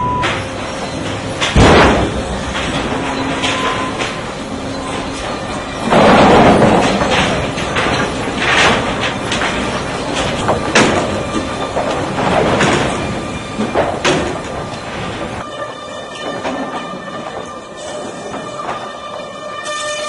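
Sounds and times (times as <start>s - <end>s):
conveyor chain rattling and clattering: 0.4s - 19.6s
boards knocking: 1.3s - 15.4s.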